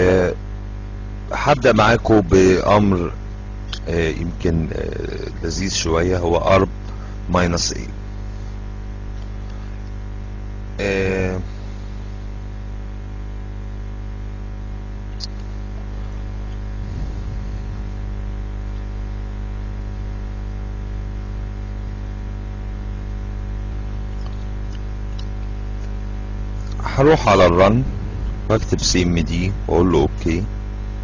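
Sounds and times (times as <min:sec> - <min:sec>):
electrical mains hum: 0:00.0 - 0:31.0
recording hiss: 0:10.8 - 0:12.1, 0:26.6 - 0:31.0.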